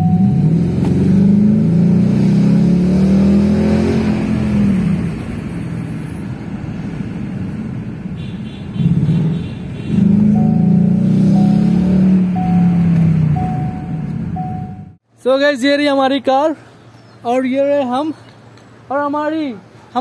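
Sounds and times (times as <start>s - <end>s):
car engine accelerating: 0.0s - 5.6s, 9.9s - 15.0s.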